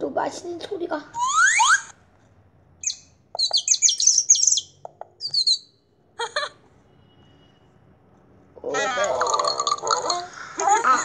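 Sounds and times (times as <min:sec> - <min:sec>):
cartoon bird chirping: 0:01.2 - 0:02.0, 0:02.8 - 0:05.8.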